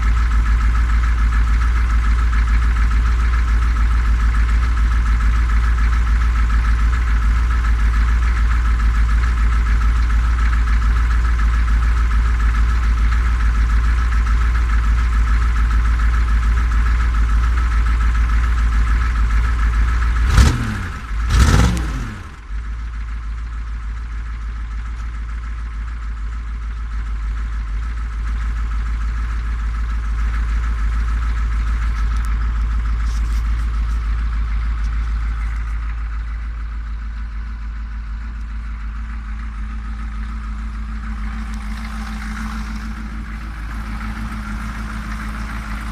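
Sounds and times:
diesel engine idling and revving: 0.0s - 45.9s.

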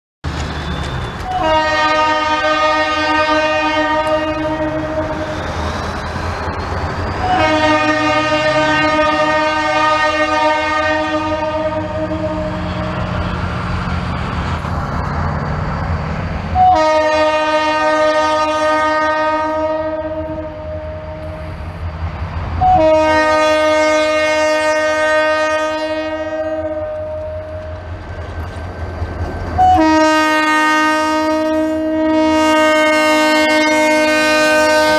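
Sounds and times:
locomotive engines rumbling: 0.2s - 34.9s
locomotive air horn blasts: 1.2s - 5.7s, 7.2s - 13.1s, 16.6s - 21.6s, 22.6s - 27.8s, 29.6s - 34.9s.

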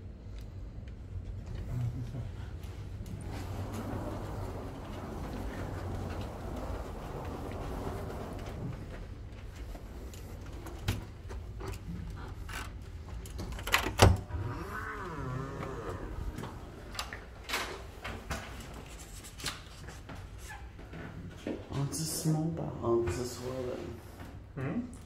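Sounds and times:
door creaking: 3.0s - 9.3s, 13.3s - 17.9s.

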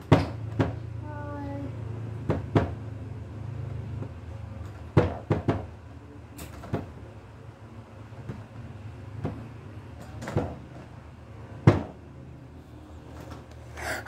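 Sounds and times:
sharp knocks and clatters: 0.0s - 0.9s, 2.2s - 2.8s, 4.0s - 5.8s, 11.6s - 12.0s.

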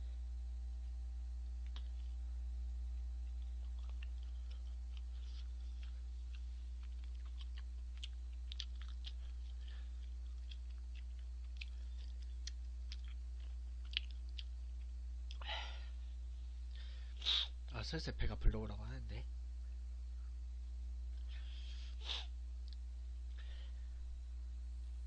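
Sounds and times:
steady low hum: 0.0s - 25.0s
faint wet chewing clicks: 1.4s - 2.2s, 3.2s - 15.4s, 22.6s - 23.5s.

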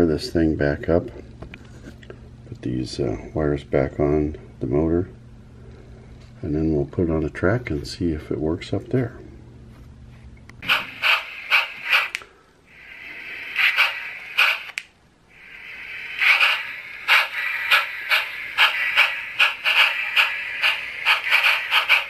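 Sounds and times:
model locomotive motor whirring: 10.6s - 12.2s, 12.8s - 22.0s.

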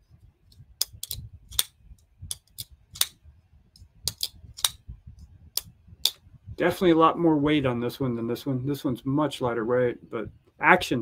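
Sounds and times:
folding knife blades clicking: 0.8s - 1.7s, 4.1s - 4.8s.

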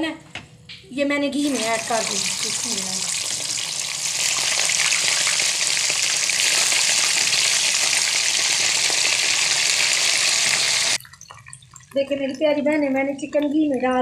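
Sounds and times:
chicken sizzling in hot fat: 1.4s - 11.0s.

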